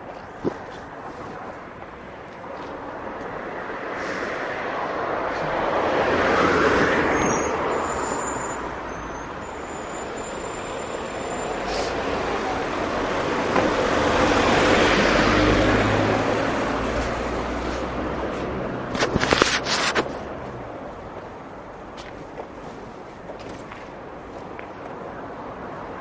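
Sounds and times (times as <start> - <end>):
street traffic passing: 0.0 - 26.0.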